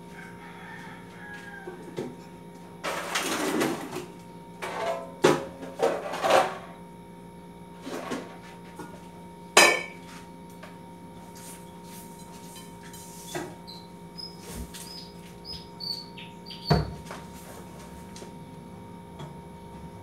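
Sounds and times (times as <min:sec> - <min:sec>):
steady low hum: 0:00.0 - 0:20.0
dishes and utensils clattering: 0:09.6 - 0:10.0
loud dish clank: 0:09.6 - 0:10.0.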